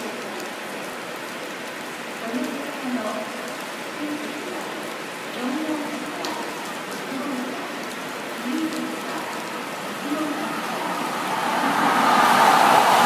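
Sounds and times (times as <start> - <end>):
steady rain falling: 0.0 - 13.0
faint voices: 8.4 - 13.0.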